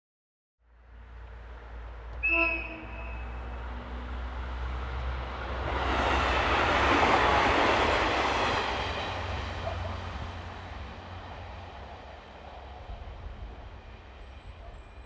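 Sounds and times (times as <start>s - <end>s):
brief high tone: 2.2s - 3.5s
train wheels on rails: 2.8s - 15.0s.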